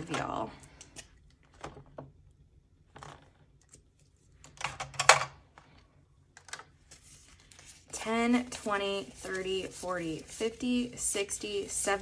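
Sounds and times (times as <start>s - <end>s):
paper rustling: 6.4s - 12.0s.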